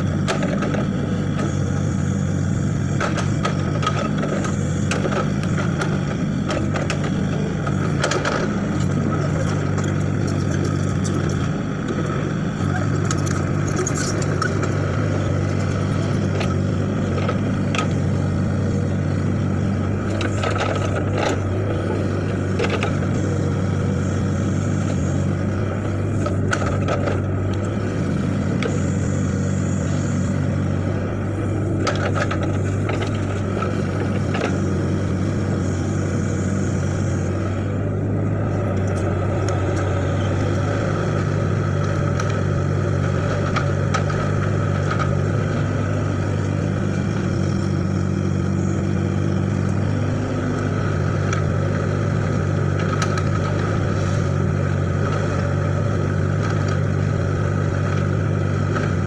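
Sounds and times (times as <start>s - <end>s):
excavator diesel engine running: 0.0s - 59.0s.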